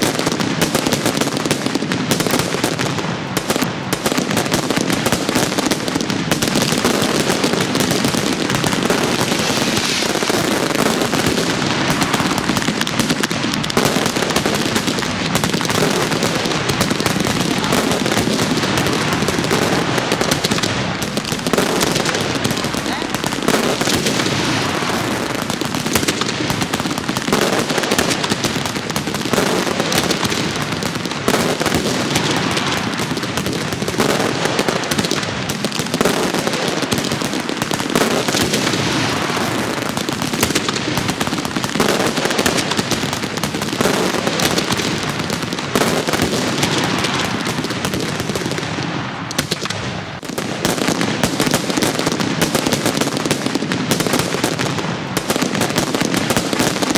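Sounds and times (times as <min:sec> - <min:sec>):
fireworks crackling and popping: 0:00.0 - 0:56.9.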